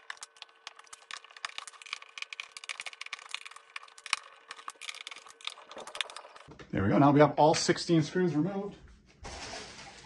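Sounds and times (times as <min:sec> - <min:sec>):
small plastic rattles: 0:00.0 - 0:06.5.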